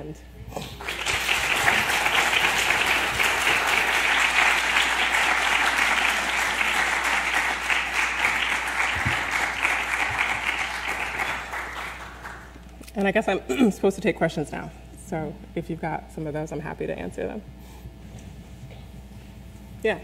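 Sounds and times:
audience applauding: 0.7s - 12.7s.

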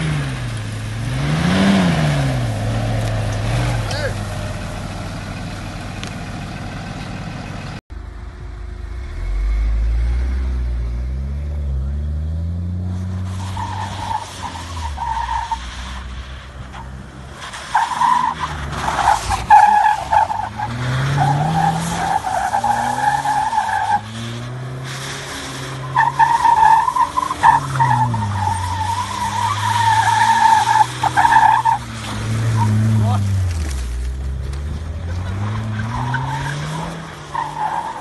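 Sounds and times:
car engine revving: 0.0s - 7.8s, 8.4s - 38.0s
tyres skidding through dirt: 0.0s - 7.8s, 9.0s - 38.0s.

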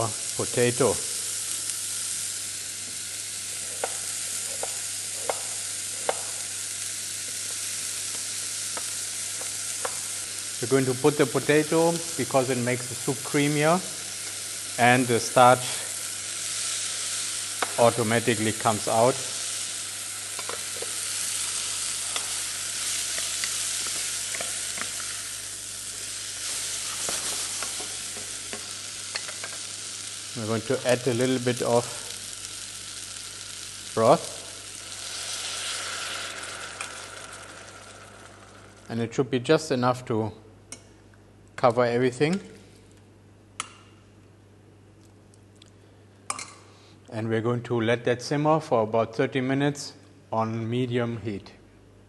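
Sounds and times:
vegetables sizzling in oil: 0.0s - 39.1s.

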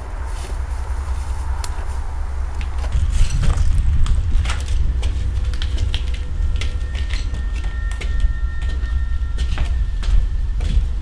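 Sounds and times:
low steady rumble: 0.0s - 11.0s
footsteps crunching on concrete stairs: 3.4s - 11.0s
faint high held tones: 5.2s - 11.0s.

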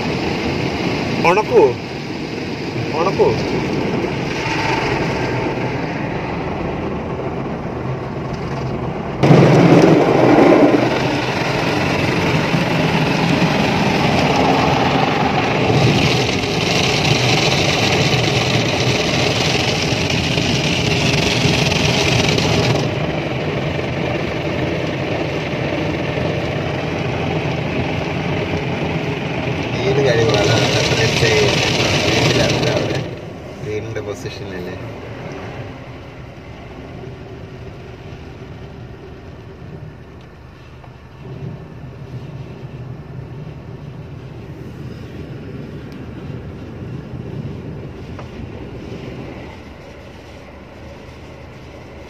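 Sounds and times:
car wash brushes scrubbing: 9.4s - 23.0s, 29.3s - 33.6s.

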